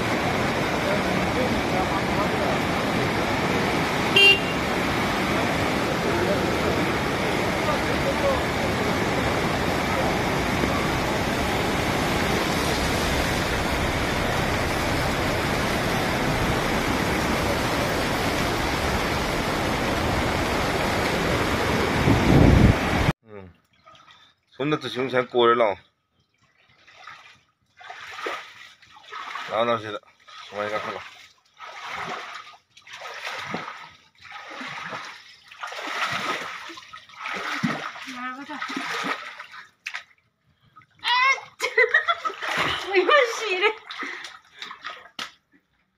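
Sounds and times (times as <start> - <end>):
fast-flowing river rushing: 0.0 - 23.1
splashing in deep water: 26.4 - 40.2, 41.9 - 45.4.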